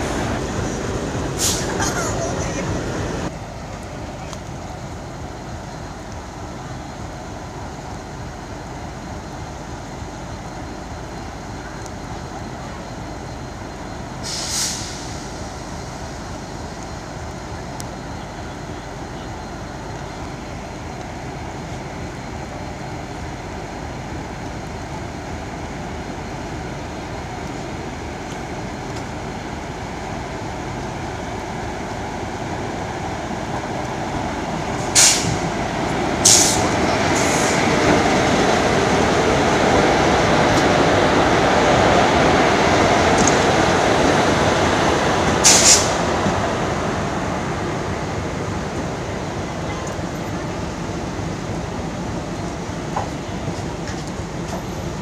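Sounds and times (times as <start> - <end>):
steady wash of noise: 0.0 - 12.0, 19.6 - 55.0
electric locomotive running: 0.0 - 55.0
short hiss: 1.4 - 1.8, 14.2 - 15.5, 34.8 - 35.4, 36.2 - 37.6, 45.4 - 46.0.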